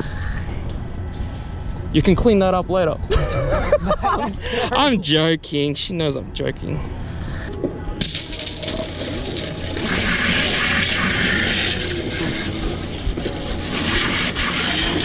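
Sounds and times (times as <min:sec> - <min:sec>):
hose spray splashing on deck: 0:08.0 - 0:15.0.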